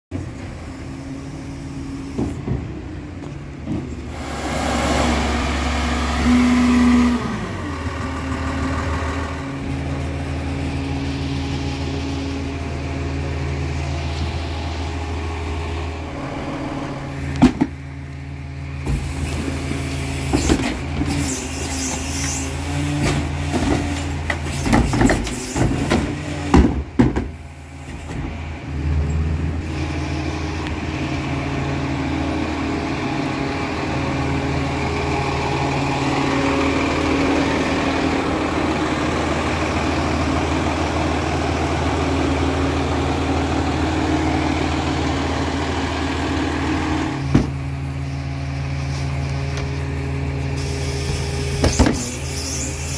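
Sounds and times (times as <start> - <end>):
diesel truck engine idling: 0.1 - 52.9
garbage carts clanking and banging: 18.9 - 28.4.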